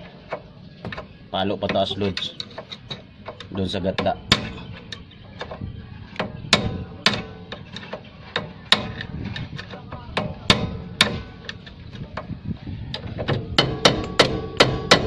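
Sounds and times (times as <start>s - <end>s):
hammer striking steel: 10.2s - 11.6s, 13.2s - 15.0s.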